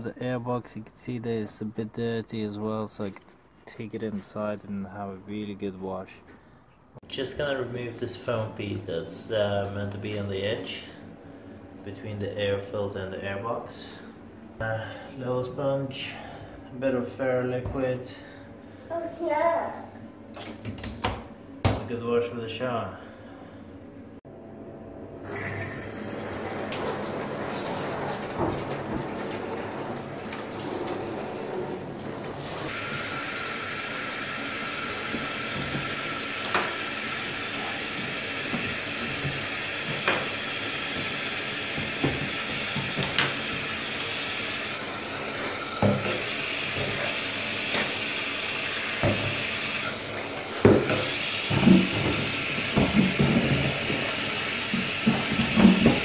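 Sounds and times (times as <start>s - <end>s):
shower head water spraying: 25.2s - 56.0s
plastic knocking against tub: 40.9s - 43.7s, 50.6s - 54.1s, 54.7s - 56.0s.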